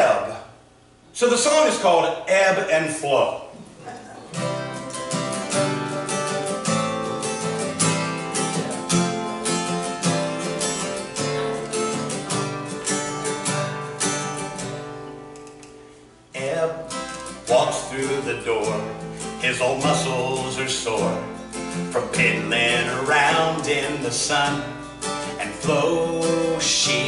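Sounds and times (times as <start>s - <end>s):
acoustic guitar picking: 4.2s - 27.0s
man singing: 16.4s - 27.0s.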